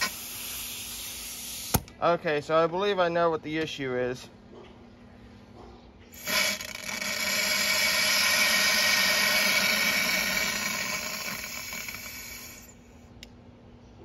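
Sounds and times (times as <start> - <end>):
air hissing through valve: 0.0 - 1.9, 6.2 - 13.0.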